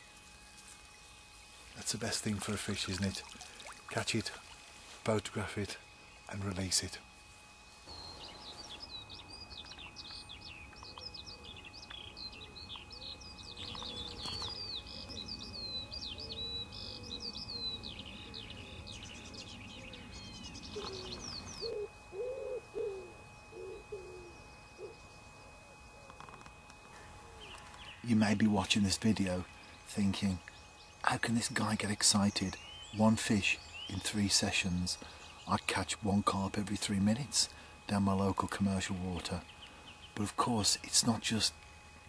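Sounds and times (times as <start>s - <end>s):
songbirds chirping: 0.0s - 42.0s
wood pigeon cooing: 20.7s - 25.0s, 25.6s - 27.8s.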